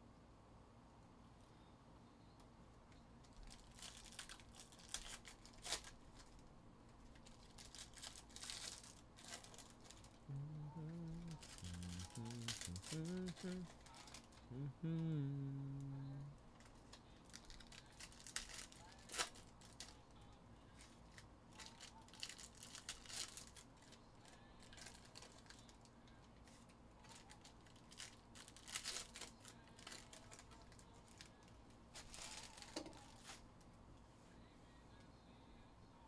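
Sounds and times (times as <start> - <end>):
foil wrappers crinkling: 3.3 - 6.4, 7.1 - 14.5, 16.6 - 20.0, 20.8 - 25.8, 26.4 - 33.4.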